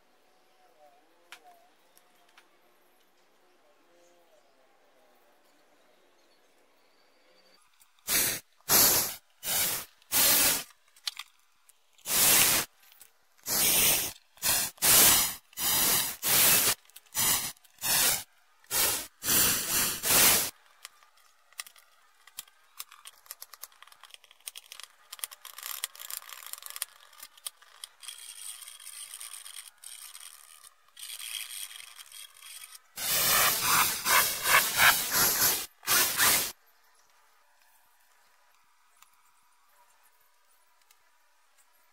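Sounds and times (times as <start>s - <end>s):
loud scraping strokes: 13.5s - 20.5s, 33.0s - 36.5s
hand drill boring holes: 28.2s - 36.5s
faint scratching: 31.4s - 36.5s.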